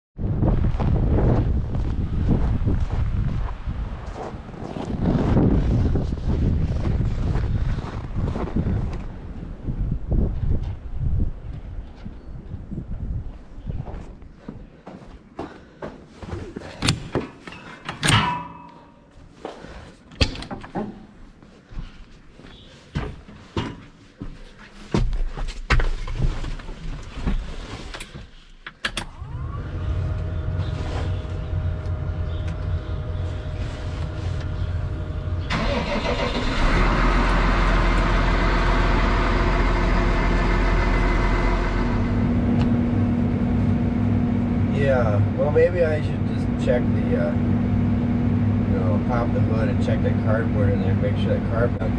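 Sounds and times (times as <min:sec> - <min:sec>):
diesel engine starting and idling: 0:28.9 - 0:51.9.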